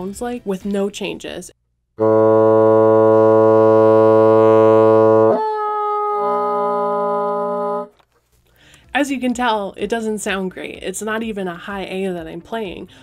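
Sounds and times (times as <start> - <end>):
bassoon slurring up from low note: 2.0 - 7.9.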